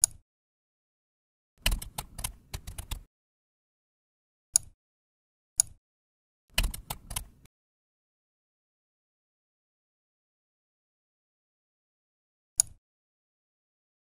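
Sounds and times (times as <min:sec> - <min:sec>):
single keyboard clicks: 0:00.0 - 0:00.2, 0:01.6 - 0:03.1, 0:05.6 - 0:05.8, 0:06.6 - 0:07.4, 0:12.6 - 0:12.8
typing on computer keyboard: 0:01.6 - 0:03.1, 0:06.6 - 0:07.5.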